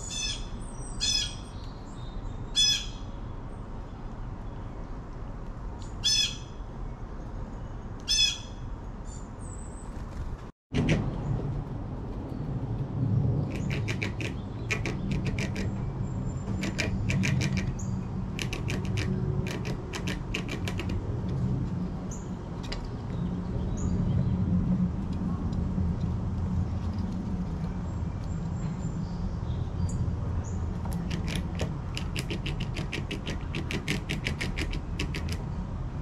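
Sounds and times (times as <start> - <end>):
squirrel gnawing corn: 12.7 - 21.8, 30.7 - 35.5.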